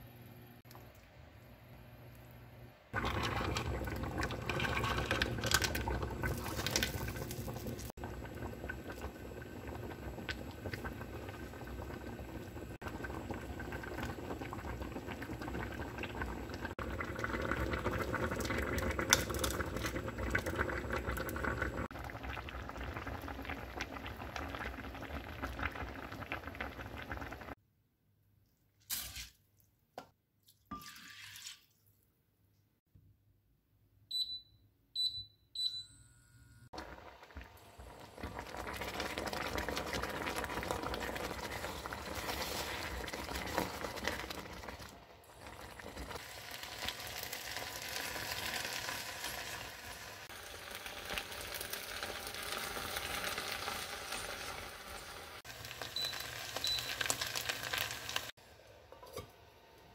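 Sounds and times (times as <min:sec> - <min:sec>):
cooktop control beeps: 0:34.1 - 0:36.7, 0:55.8 - 0:57.5
rice sizzling in a pot: 0:36.8 - 0:59.2.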